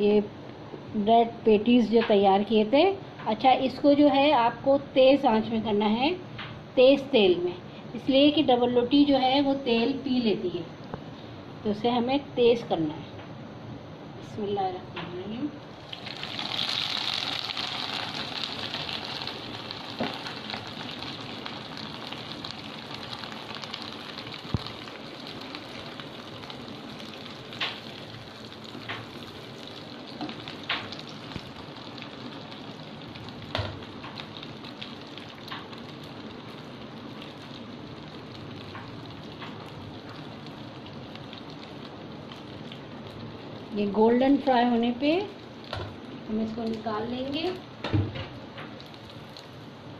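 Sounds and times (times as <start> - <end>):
patty sizzling in hot oil: 15.7 - 49.9.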